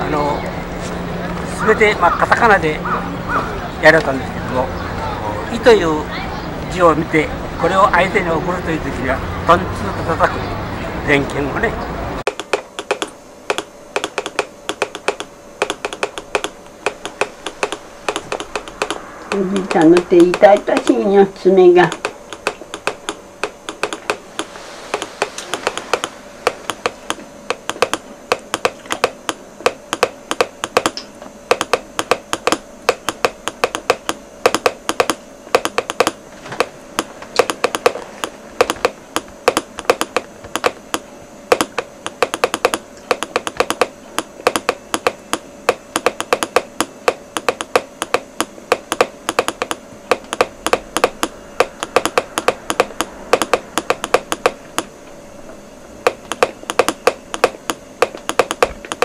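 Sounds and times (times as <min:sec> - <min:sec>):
telegraph key clicking: 0:12.3 - 0:19.0, 0:21.9 - 0:24.2, 0:25.6 - 0:36.2, 0:37.0 - 0:54.9, 0:56.0 - 0:59.0.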